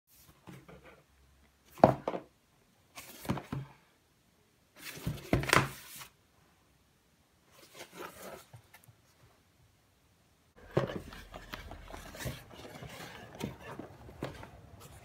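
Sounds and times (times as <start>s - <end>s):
cardboard box rubbing and knocking: 10.6s - 15.0s.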